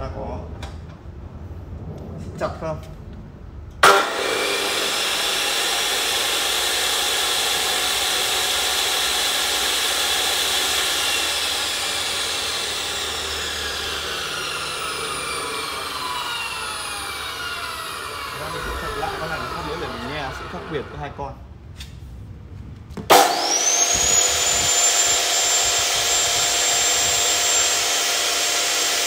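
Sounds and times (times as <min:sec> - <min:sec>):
chop saw motor whine: 0:03.8 - 0:21.2, 0:23.1 - 0:29.0.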